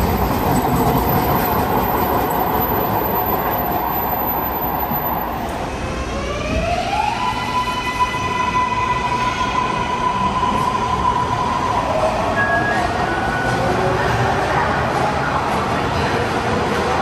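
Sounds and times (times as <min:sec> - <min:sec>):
train wheels rumbling on rails: 0:00.0 - 0:05.8.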